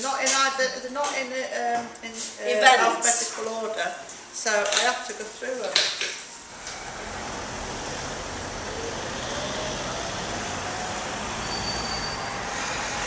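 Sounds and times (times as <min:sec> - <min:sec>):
engine note rising in pitch: 0:06.4 - 0:13.0
rumble of passing cars: 0:06.4 - 0:13.0.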